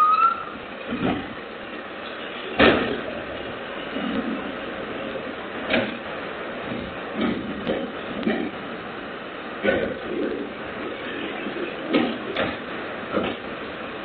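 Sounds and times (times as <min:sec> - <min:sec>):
diesel garbage truck idling: 0:00.0 - 0:14.0
trash cans banging: 0:02.5 - 0:03.2, 0:09.6 - 0:11.2.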